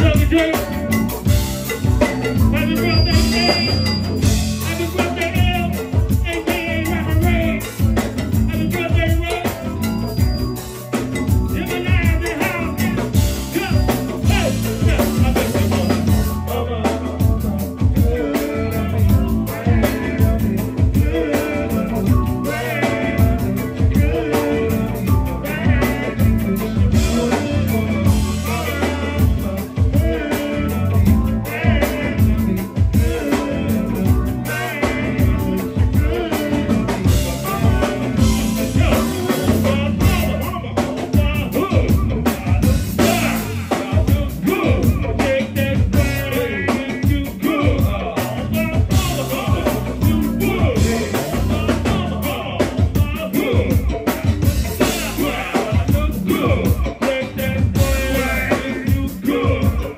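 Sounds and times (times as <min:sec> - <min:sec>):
live band playing groove: 0:00.0 - 0:59.9.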